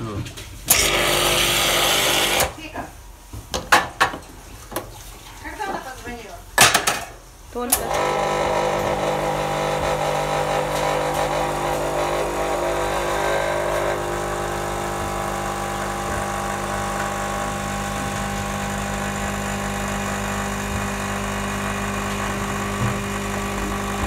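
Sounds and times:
espresso machine pump humming: 0.7 - 2.5, 7.8 - 24.0.

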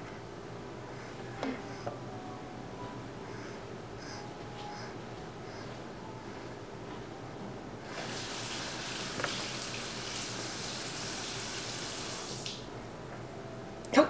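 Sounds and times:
water running from a tap: 7.9 - 12.6.

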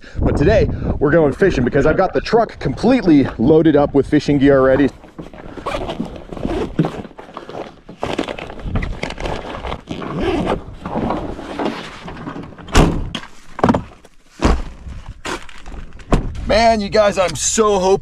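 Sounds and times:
backpack rustling and scraping: 4.7 - 16.4
sharp thunks of pack and door: 7.8 - 16.5.

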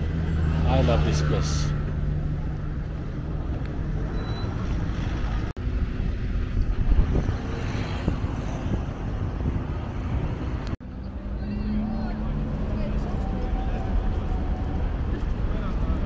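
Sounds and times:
wind buffeting microphone: 5.1 - 10.8.

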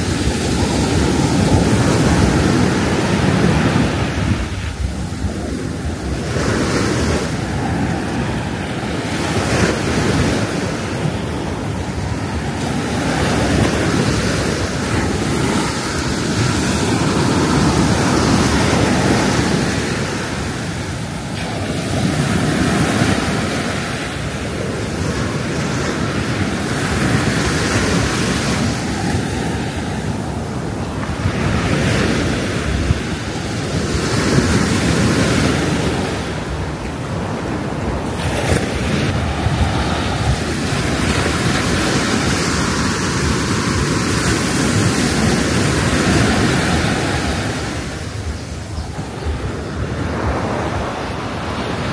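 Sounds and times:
sea surf breaking: 0.0 - 51.9
wind buffeting microphone: 0.0 - 51.9.

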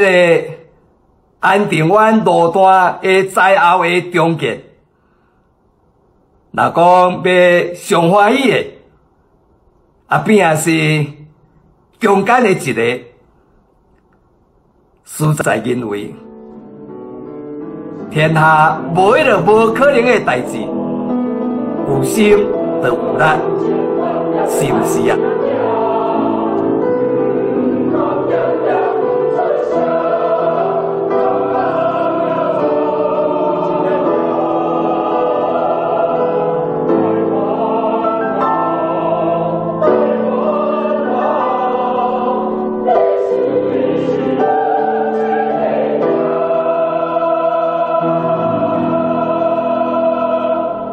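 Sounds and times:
choir singing slow chords: 16.2 - 50.9.

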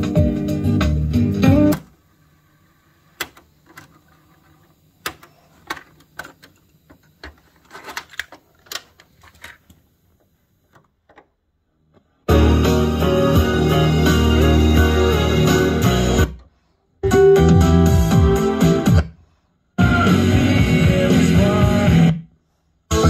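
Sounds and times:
music from boombox: 0.0 - 1.9, 12.3 - 19.2, 19.8 - 22.3.

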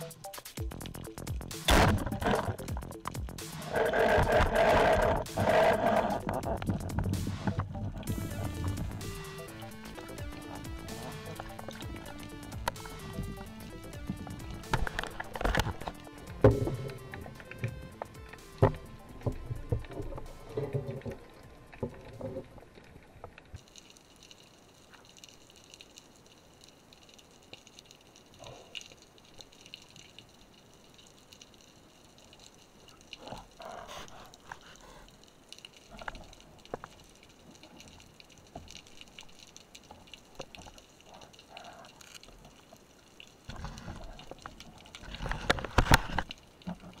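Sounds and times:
rush of water: 0.0 - 47.0
underwater clicks and sloshes: 0.0 - 47.0
underwater hiss: 3.4 - 6.6.

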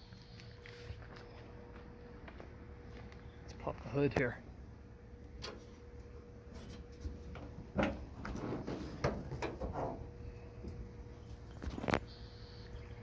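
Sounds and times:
metal latch clicks and clunks: 7.4 - 8.1.

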